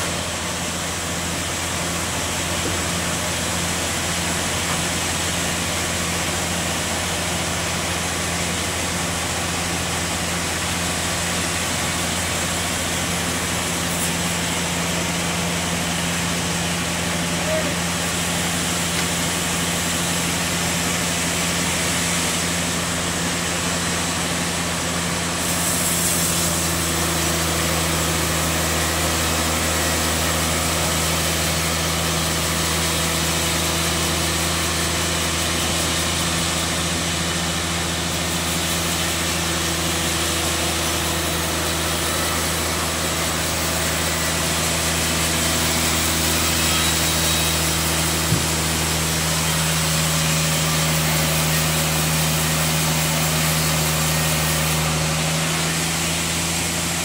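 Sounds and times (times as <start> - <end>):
sawmill machinery humming: 0.0 - 57.0
hiss: 17.3 - 28.4.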